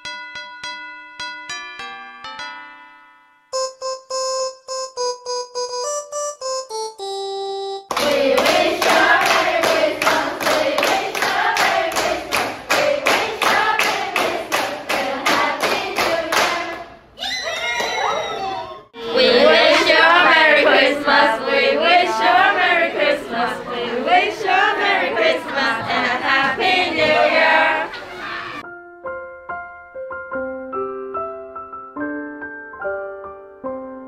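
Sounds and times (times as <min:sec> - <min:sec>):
keyboard melody: 0:00.0 - 0:07.9, 0:28.6 - 0:34.0
hands clapping in time: 0:07.9 - 0:16.8
girls singing a carol: 0:07.9 - 0:17.0, 0:19.0 - 0:27.9.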